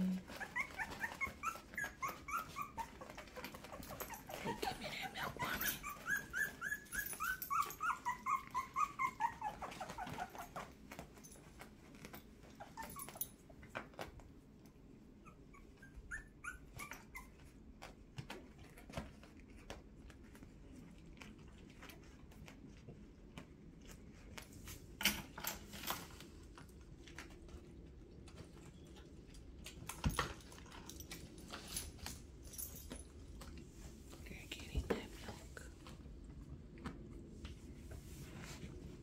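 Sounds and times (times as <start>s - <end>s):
puppies squeaking whimpers: 0.0s - 10.7s, 12.6s - 13.3s, 15.2s - 17.4s.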